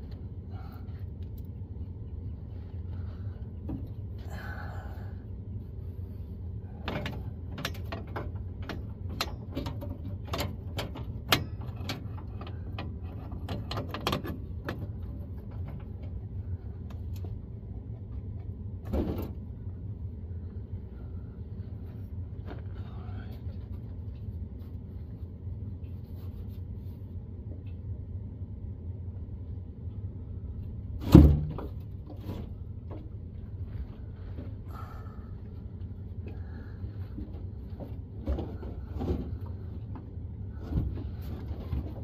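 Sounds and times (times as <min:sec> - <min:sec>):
steady low hum: 0:00.0 - 0:42.0
metal clicks and knocks: 0:06.8 - 0:16.2.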